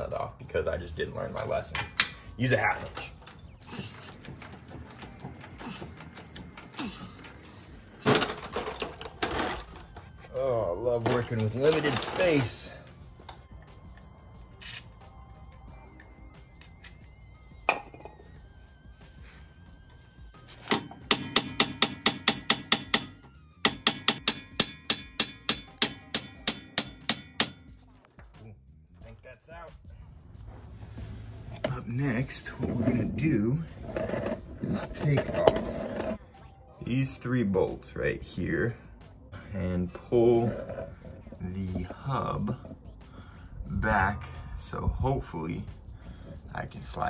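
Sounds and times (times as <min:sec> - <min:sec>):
hammer striking metal: 0:20.7 - 0:27.8.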